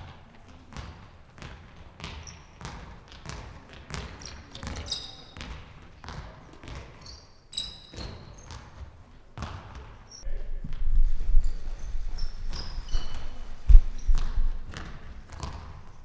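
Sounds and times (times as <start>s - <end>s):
ball bouncing on hall floor: 0.0s - 16.0s
short high squeaks: 7.0s - 8.5s, 12.1s - 14.2s.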